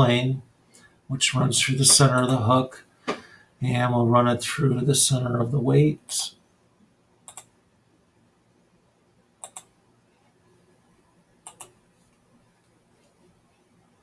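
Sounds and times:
computer mouse clicking: 7.2s - 7.5s, 9.4s - 9.7s, 11.4s - 11.8s.

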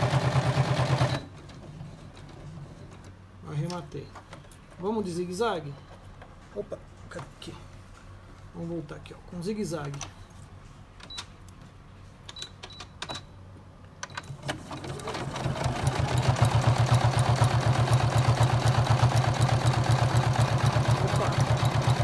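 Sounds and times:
sewing machine stitching: 0.0s - 2.9s, 14.2s - 22.0s.

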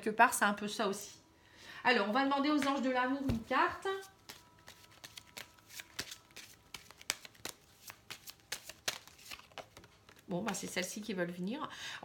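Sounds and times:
cards being shuffled: 3.3s - 11.0s.

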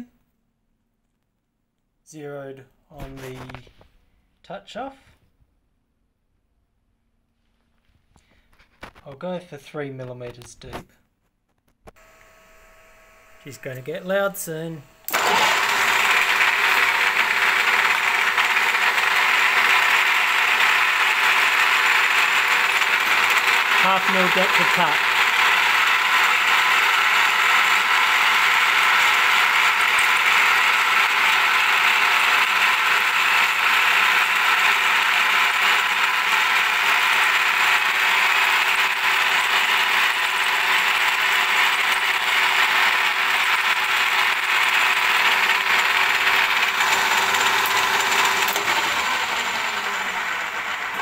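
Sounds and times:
milling machine cutting steel: 12.0s - 18.2s.

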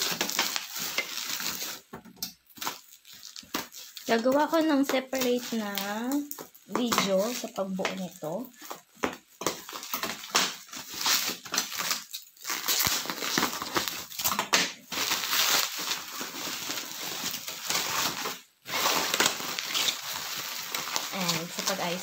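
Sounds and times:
bubble wrap crinkling: 0.0s - 22.0s.

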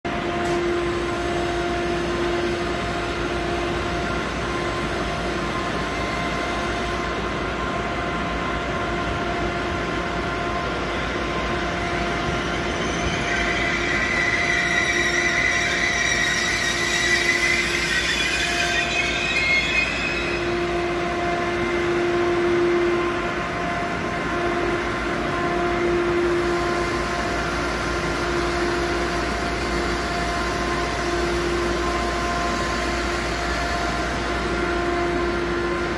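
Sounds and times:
train wheels and brakes squealing: 0.1s - 35.9s.

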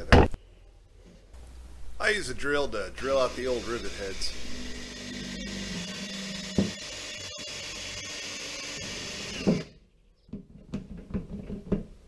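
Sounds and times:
cordless drill drilling metal: 3.0s - 9.8s.

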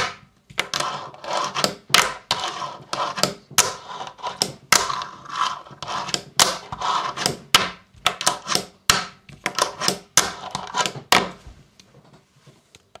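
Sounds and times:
fingerboard wheels rolling: 0.6s - 7.4s.

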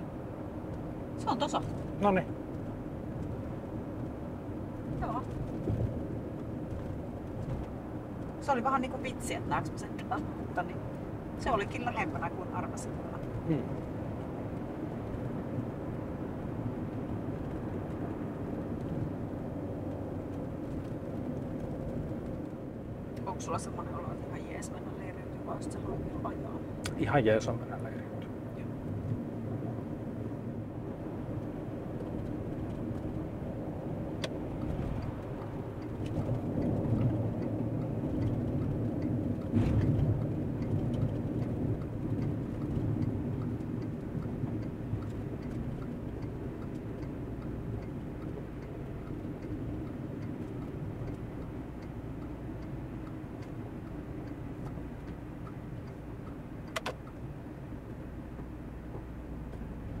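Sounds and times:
road and engine rumble: 0.0s - 60.0s
sharp clicks: 53.0s - 57.2s.

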